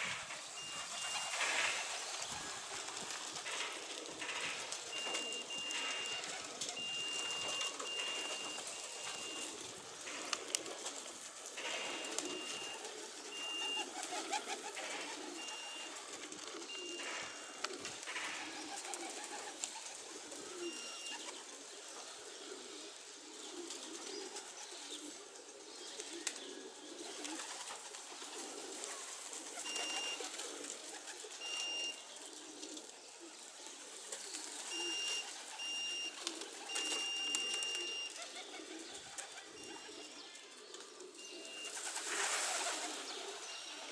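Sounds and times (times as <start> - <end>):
pigeons cooing: 0.0 - 43.9
short high beeps: 5.0 - 9.5.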